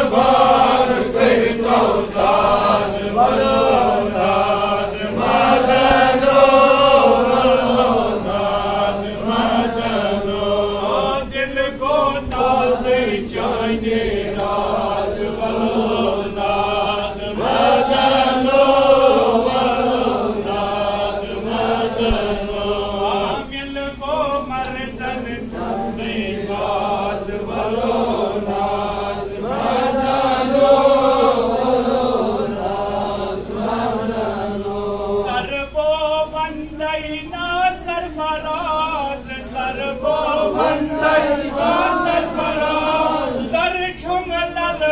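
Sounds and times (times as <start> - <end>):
man chanting melodically: 0.0 - 13.8, 22.4 - 27.5, 34.8 - 44.9.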